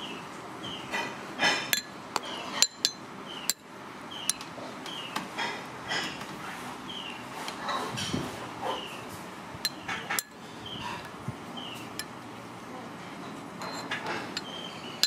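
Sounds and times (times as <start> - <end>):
metal spoon scraping ceramic bowl: 13.6 - 15.0.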